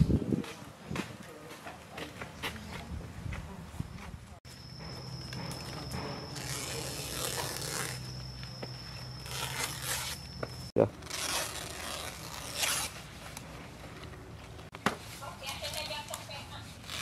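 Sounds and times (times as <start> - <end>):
banana leaves rustling: 6.2 - 8.1, 9.2 - 10.2, 11.0 - 13.8, 14.7 - 17.0.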